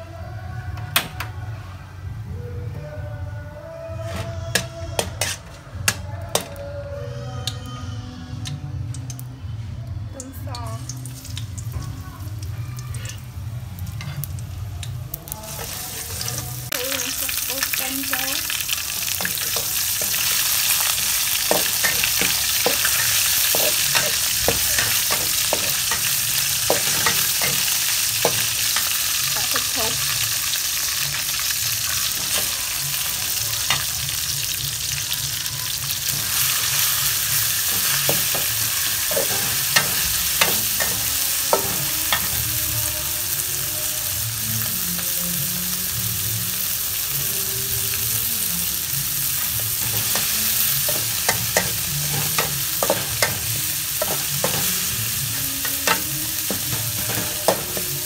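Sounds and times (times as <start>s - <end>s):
metal spatula scraping a wok: 4.0s - 6.6s
stir-fry sizzling in a wok: 10.2s - 58.0s.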